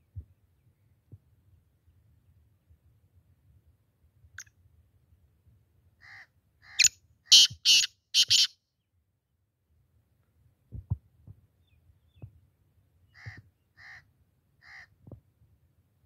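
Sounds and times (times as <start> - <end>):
francolin calling: 6.7 - 8.6.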